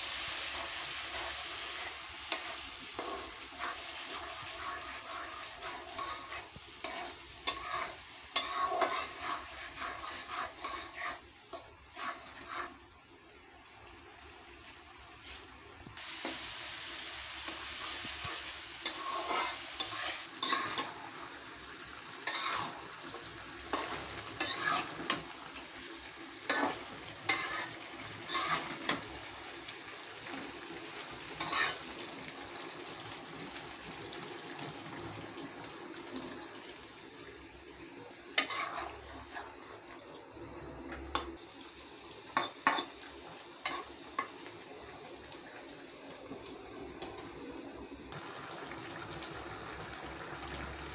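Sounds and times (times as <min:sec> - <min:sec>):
curry sizzling: 0:00.0 - 0:50.9
spatula scraping metal pot: 0:02.3 - 0:12.8, 0:22.2 - 0:22.8, 0:23.7 - 0:25.2, 0:26.5 - 0:28.9, 0:31.4 - 0:31.8, 0:38.4 - 0:39.5.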